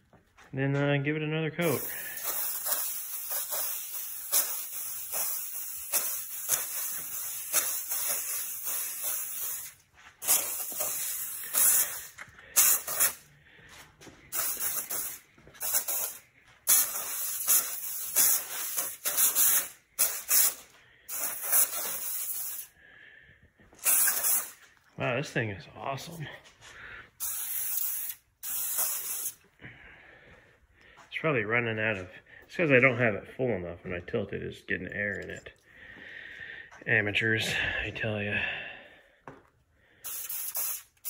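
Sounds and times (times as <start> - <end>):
aerosol paint sprayer hissing: 1.6 - 13.3, 14.3 - 22.8, 23.8 - 24.7, 27.2 - 29.4, 40.0 - 41.0.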